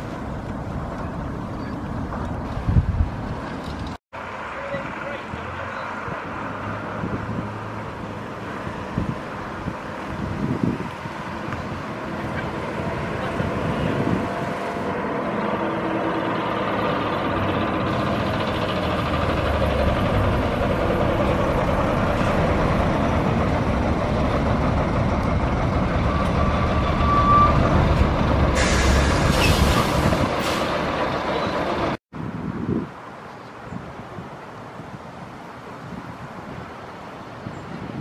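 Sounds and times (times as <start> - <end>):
bus diesel engine passing: 4.2 - 32.0
air brakes hissing: 28.4 - 30.8.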